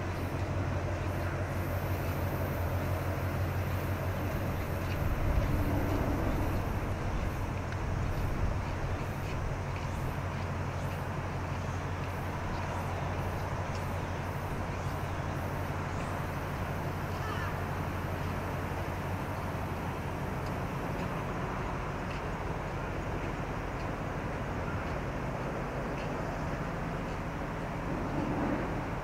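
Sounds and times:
outdoor hiss: 0.0s - 21.6s
ship engine hum: 0.0s - 29.0s.

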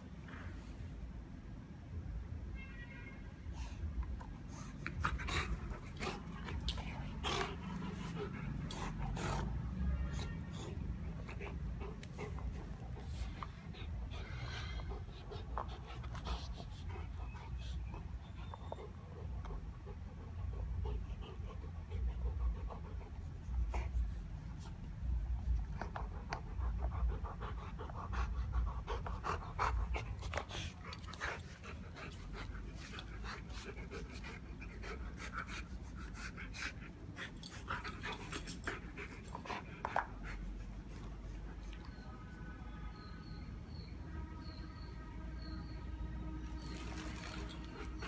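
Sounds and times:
dog panting: 4.5s - 41.9s.

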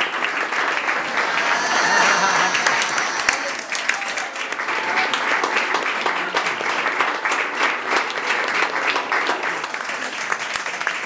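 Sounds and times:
audience applauding: 0.0s - 11.0s.

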